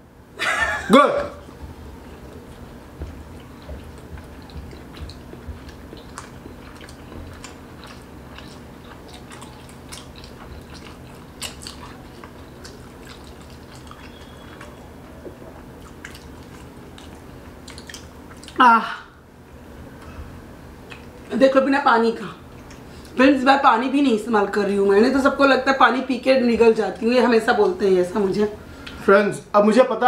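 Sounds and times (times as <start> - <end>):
steady low hum: 0.0 - 30.0
people chewing with wet smacks: 1.2 - 18.6, 19.4 - 21.3, 22.4 - 23.2.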